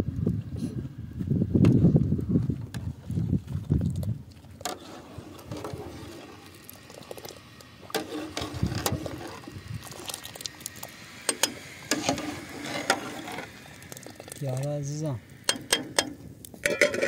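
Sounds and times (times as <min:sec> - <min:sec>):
ladle stirring rice in water: 0:04.6 - 0:17.0
ladle clinking against pot: 0:15.5 - 0:17.0.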